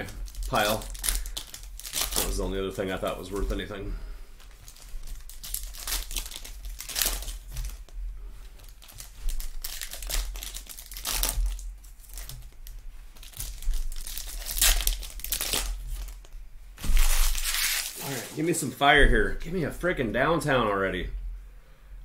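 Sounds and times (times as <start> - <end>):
foil wrappers crinkling and tearing: 0.0 - 3.7, 4.4 - 18.6.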